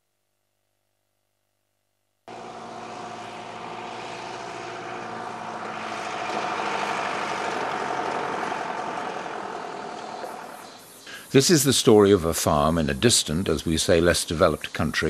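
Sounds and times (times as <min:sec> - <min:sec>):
truck driving on dirt road: 0:02.3 - 0:11.2.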